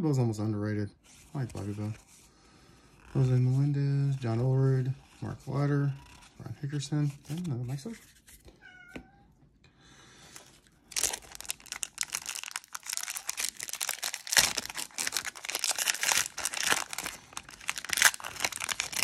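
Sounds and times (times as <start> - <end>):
foil wrapper crinkling and tearing: 10.3 - 19.0.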